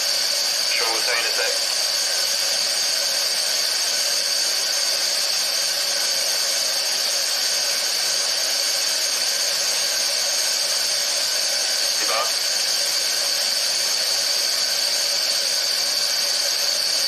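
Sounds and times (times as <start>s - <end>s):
high-pitched gas hiss: 0.6s - 2.4s, 8.8s - 17.0s.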